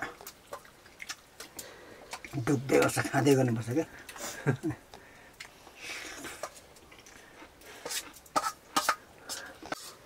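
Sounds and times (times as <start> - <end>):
soft chewing and mouth sounds: 0.0 - 10.0.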